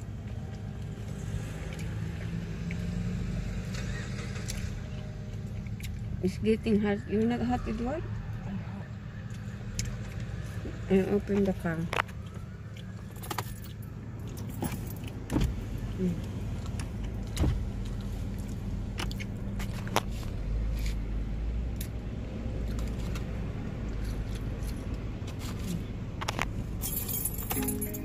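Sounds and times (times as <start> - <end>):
car hum: 0.0 - 28.0
car keys jangling: 13.1 - 15.2, 26.7 - 28.0.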